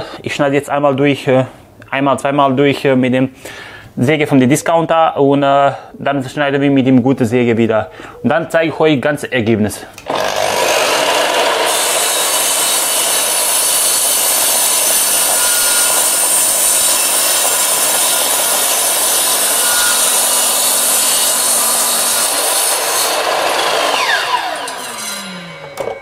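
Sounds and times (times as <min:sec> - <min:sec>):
mitre saw cutting through wood: 0:10.0 - 0:26.0.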